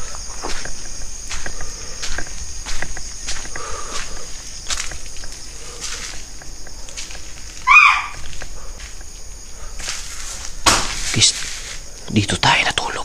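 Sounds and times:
footsteps on concrete floor: 0.0s - 12.0s
crickets chirping: 0.0s - 13.0s
short high animal call: 7.6s - 8.2s.

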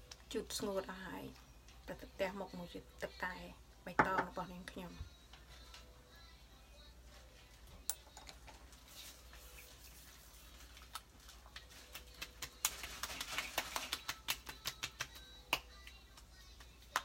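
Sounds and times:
fingers tapping skin: 11.6s - 16.0s.

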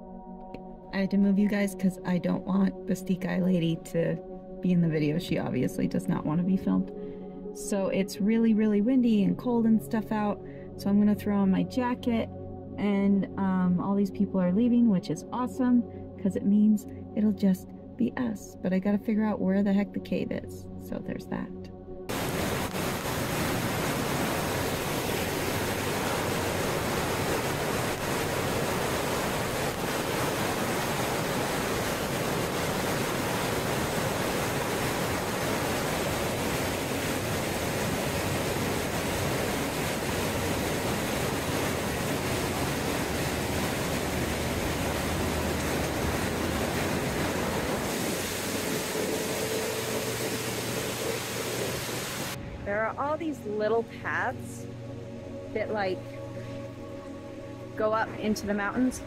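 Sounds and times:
fast-flowing stream rushing: 22.1s - 52.4s.

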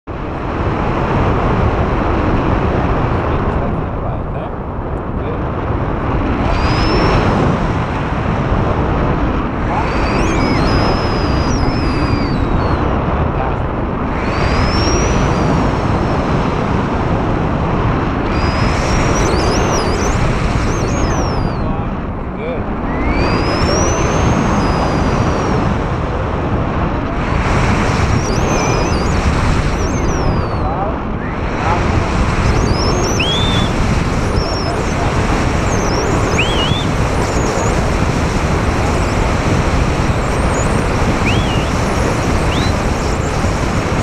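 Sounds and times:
wind buffeting microphone: 0.1s - 44.0s
faint thin whistles: 6.5s - 7.3s, 9.7s - 12.8s, 14.2s - 15.6s, 18.3s - 21.8s, 22.9s - 25.5s, 28.0s - 37.8s, 38.8s - 43.6s.

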